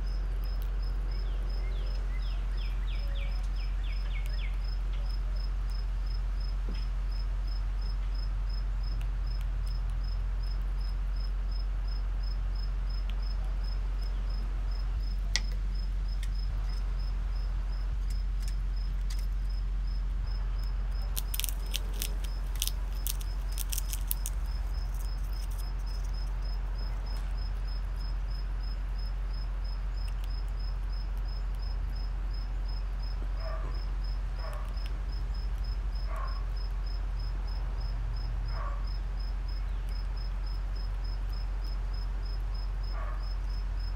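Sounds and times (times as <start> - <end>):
cricket chirping: 0.0 - 43.9
steady low hum: 0.0 - 43.9
teeth clicking on a nut shell: 21.1 - 26.3.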